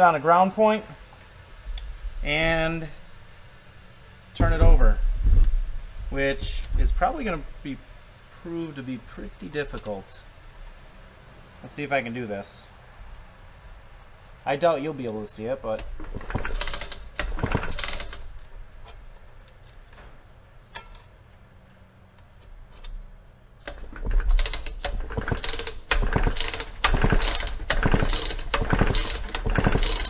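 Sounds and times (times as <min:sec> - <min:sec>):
chainsaw recoil starter pulls: 0:15.7 - 0:18.4, 0:23.6 - 0:30.0.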